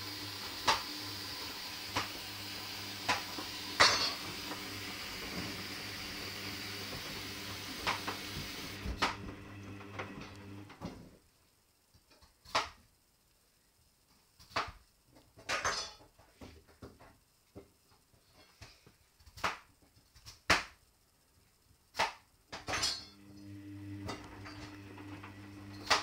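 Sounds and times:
washing machine motor hum: 0:00.0 - 0:11.0, 0:23.2 - 0:26.0.

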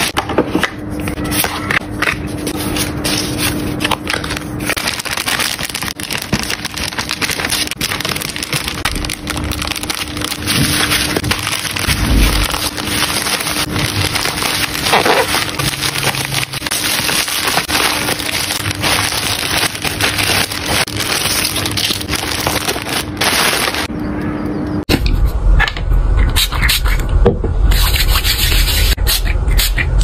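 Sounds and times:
bubble wrap crinkling: 0:02.4 - 0:23.9
plastic mailer bag rustling: 0:02.5 - 0:23.9.

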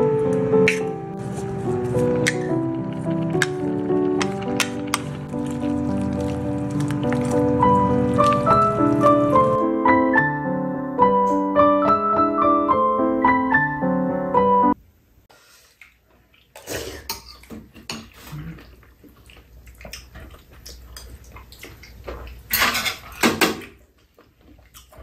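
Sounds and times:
piano music: 0:00.0 - 0:14.8.

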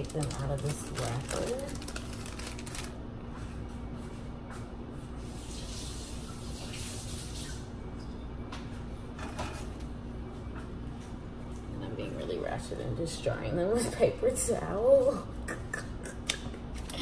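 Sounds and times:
faucet water running: 0:05.2 - 0:07.7.

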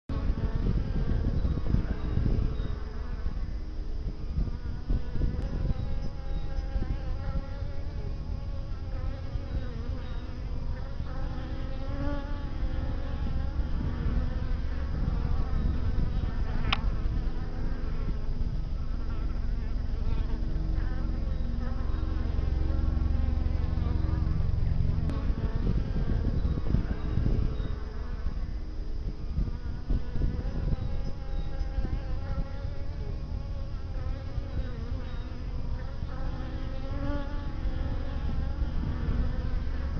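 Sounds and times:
bees buzzing: 0:00.1 - 0:39.9
low rumble: 0:00.1 - 0:39.9
brief click: 0:16.6 - 0:16.8.

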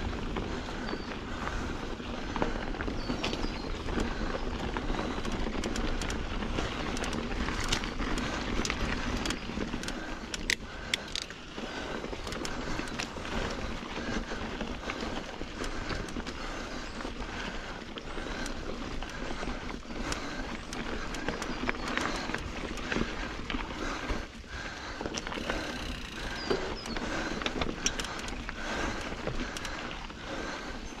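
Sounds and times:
bike tyres on dirt and stones: 0:00.0 - 0:31.0
clicks and knocks from rocks: 0:25.0 - 0:30.0.

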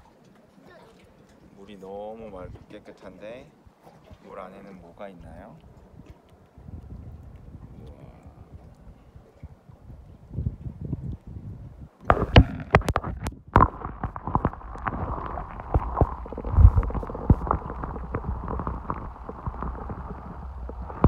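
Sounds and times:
low underwater rumble: 0:12.0 - 0:21.0
underwater clicks and knocks: 0:12.0 - 0:21.0.

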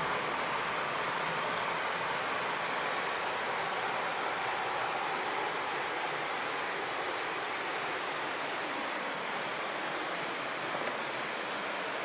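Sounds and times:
rush of falling water: 0:00.0 - 0:12.0.

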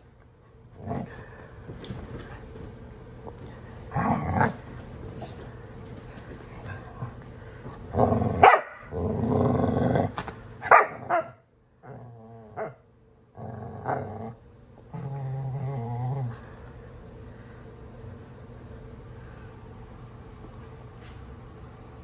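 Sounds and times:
dogs growling: 0:00.7 - 0:02.0, 0:03.4 - 0:05.4, 0:06.6 - 0:10.3, 0:11.0 - 0:16.5
dogs barking sharply: 0:08.4 - 0:08.8, 0:10.6 - 0:11.4.

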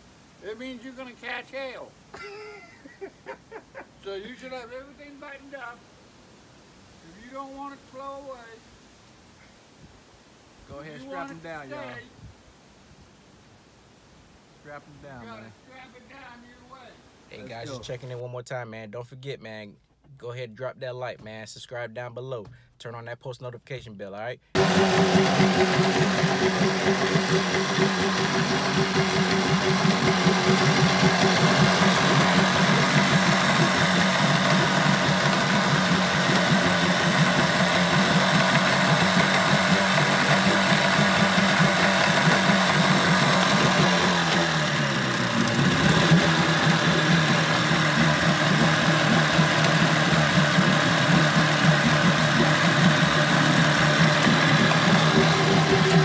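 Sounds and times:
outboard motor running: 0:24.6 - 0:56.0.

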